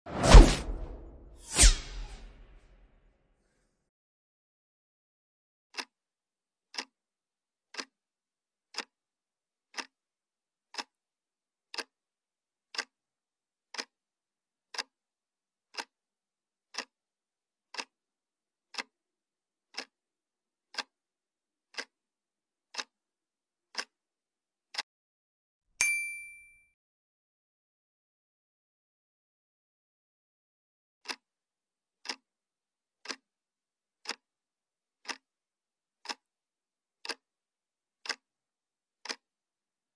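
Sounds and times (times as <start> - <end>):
clock ticking: 5.7 - 5.9, 6.7 - 6.9, 7.7 - 7.9, 8.7 - 8.9, 9.7 - 9.9, 10.7 - 10.9, 11.7 - 11.9, 12.7 - 12.9, 13.7 - 13.9, 14.7 - 14.9, 15.7 - 15.9, 16.7 - 16.9, 17.7 - 17.9, 18.7 - 18.9, 19.7 - 20.0, 20.7 - 21.0, 21.7 - 21.9, 22.7 - 22.9, 23.7 - 23.9, 31.0 - 31.2, 32.0 - 32.2, 33.0 - 33.2, 34.0 - 34.2, 35.0 - 35.2, 36.0 - 36.2, 37.0 - 37.2, 38.0 - 38.2, 39.0 - 39.2.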